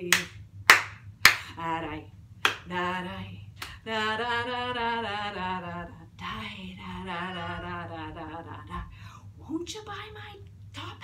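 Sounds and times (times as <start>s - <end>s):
sharp hand clap: 0.1s - 1.5s
woman singing unaccompanied: 1.4s - 11.0s.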